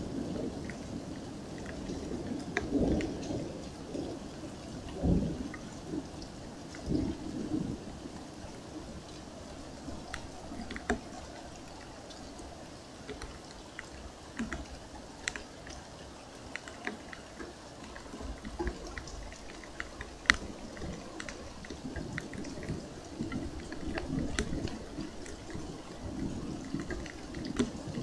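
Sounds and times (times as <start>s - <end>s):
low thunder rumble: 0.0s - 12.6s
rain patter: 0.0s - 28.0s
sharp water drips: 0.0s - 28.0s.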